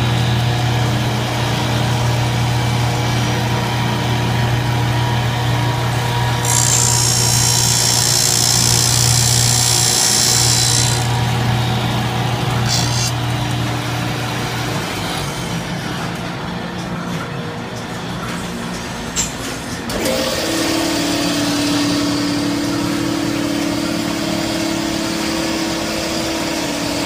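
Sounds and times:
machine motor hum: 0:00.0 - 0:16.7
grinding wheel hiss: 0:06.4 - 0:11.4, 0:12.6 - 0:13.2.

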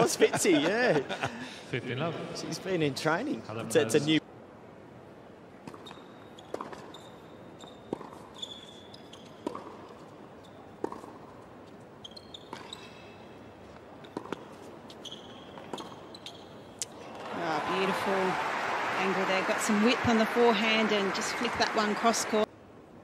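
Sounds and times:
shoes squeaking on court: 0:05.7 - 0:16.8
tennis racket hitting ball: 0:07.9 - 0:08.3, 0:10.8 - 0:11.4.

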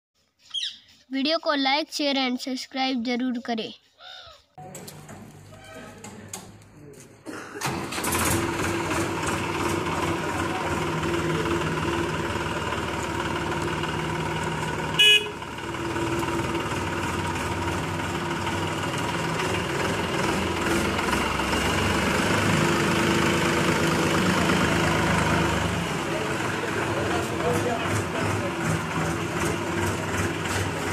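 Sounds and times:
tractor diesel engine running: 0:07.6 - 0:30.9
tractor horn toot: 0:14.8 - 0:15.6.

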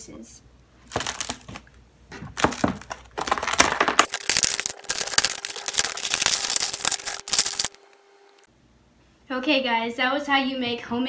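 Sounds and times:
brittle snapping and crackling: 0:00.8 - 0:07.8.

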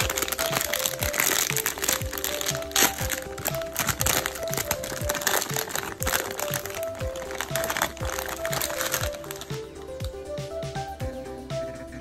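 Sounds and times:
plastic bag crinkling: 0:00.0 - 0:09.7
background music with steady beat: 0:00.0 - 0:12.0.

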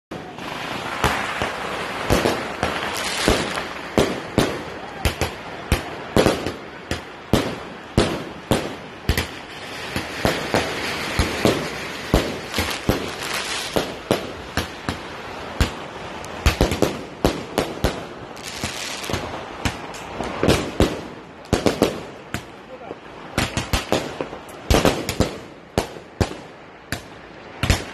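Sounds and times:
fireworks bangs: 0:00.1 - 0:27.9
fireworks crackling hiss: 0:00.1 - 0:27.9.

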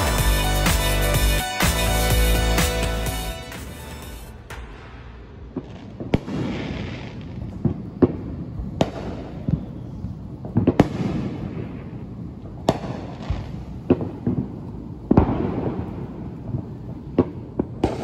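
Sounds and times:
fireworks bangs with rumbling tail: 0:04.3 - 0:18.0.

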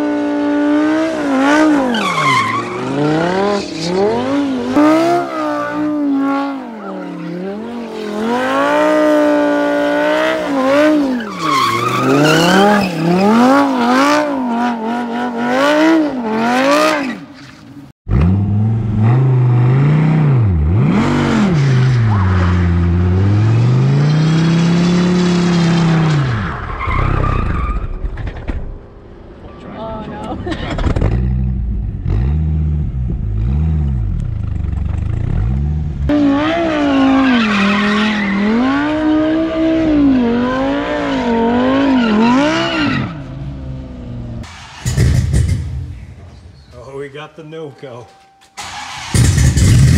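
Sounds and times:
car engine revving: 0:00.0 - 0:17.3, 0:48.6 - 0:49.9
tyres screeching: 0:10.4 - 0:14.7.

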